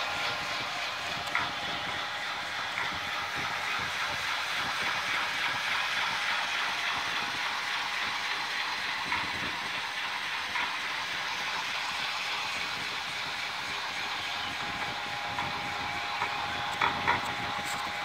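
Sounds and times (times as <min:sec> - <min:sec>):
irregular mechanical clatter: 0:00.0 - 0:18.0
metal lathe whirring: 0:00.0 - 0:18.0.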